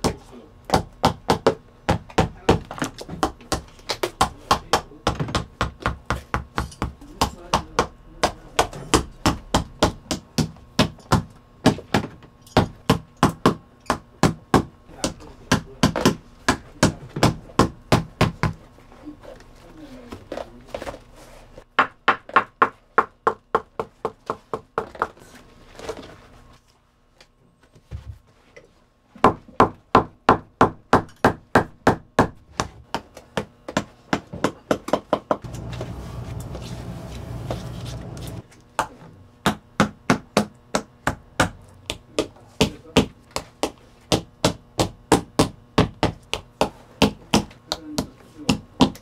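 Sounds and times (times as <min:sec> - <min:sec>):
steady machine noise: 0:35.4 - 0:38.4
hammer striking leather: 0:39.4 - 0:49.0.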